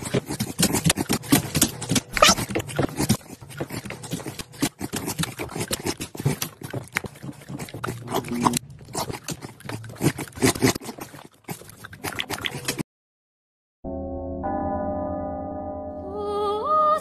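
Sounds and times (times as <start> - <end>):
dog licking and snuffling: 0.0 - 12.8.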